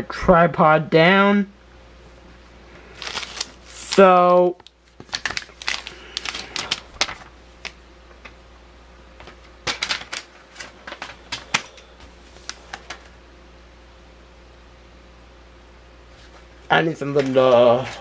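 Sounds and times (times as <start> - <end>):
plastic bags crinkling and clicking: 2.9 - 8.4, 9.2 - 13.1.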